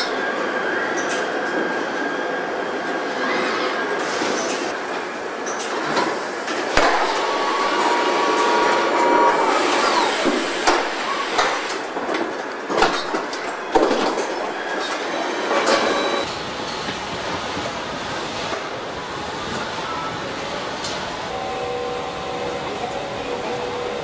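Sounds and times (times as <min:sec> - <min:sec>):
factory machinery running: 0:00.0 - 0:24.0
sharp knocks and clanks: 0:06.7 - 0:07.7, 0:10.2 - 0:15.9
machine whine: 0:06.7 - 0:12.3.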